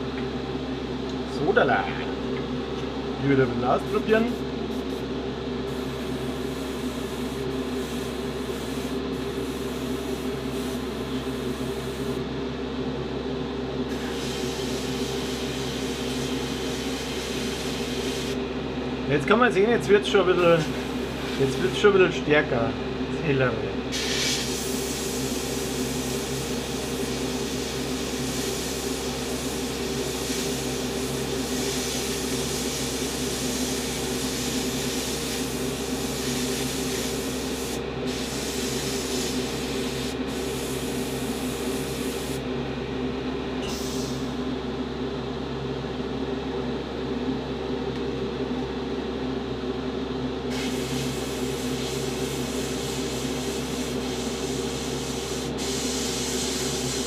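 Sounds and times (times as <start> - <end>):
low machine hum: 0.0 - 56.0
airbrush hissing: 5.7 - 12.2, 13.9 - 18.4, 23.9 - 42.4, 50.5 - 57.0.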